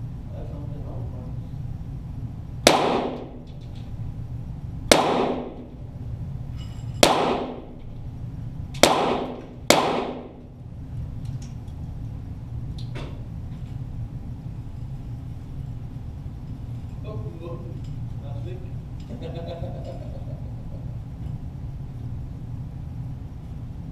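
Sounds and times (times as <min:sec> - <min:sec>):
pistol shots with ringing echo: 0:02.6 - 0:03.5, 0:04.9 - 0:05.8, 0:07.0 - 0:07.8, 0:08.8 - 0:10.5.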